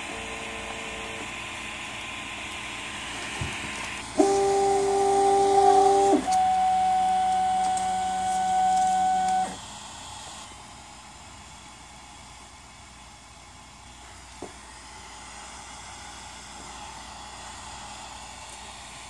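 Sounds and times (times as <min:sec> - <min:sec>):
fan hiss: 0:00.0 - 0:19.0
stepper motors whining: 0:02.9 - 0:09.6.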